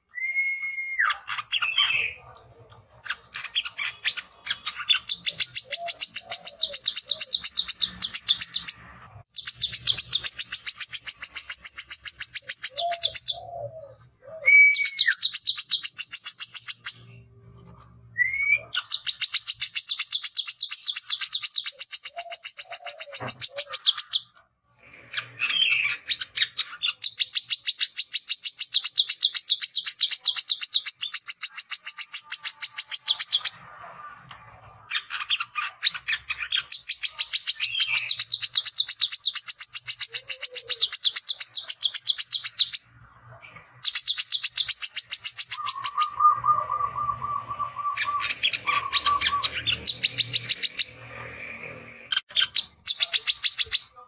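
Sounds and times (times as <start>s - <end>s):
bird high chattering song: 1.0s - 17.3s, 18.6s - 33.6s, 34.2s - 54.0s
bird slurred whistles: 45.2s - 50.9s.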